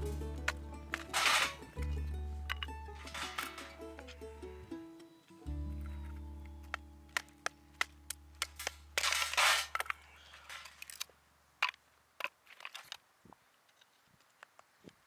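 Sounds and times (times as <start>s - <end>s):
wood splitting crackle: 0.0s - 4.3s, 5.7s - 13.0s.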